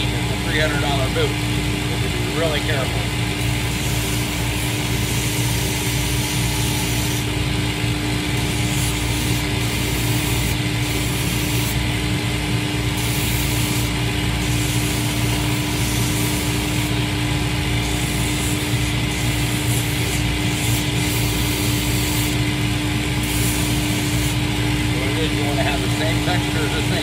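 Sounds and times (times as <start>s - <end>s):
machine motor hum: 0.0s - 27.0s
sanding wheel grinding: 3.4s - 7.3s, 8.3s - 12.0s, 12.7s - 26.6s.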